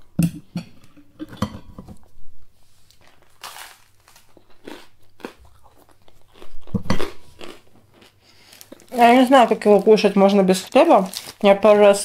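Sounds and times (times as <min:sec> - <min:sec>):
toast crunching while chewed: 0:02.9 - 0:10.0.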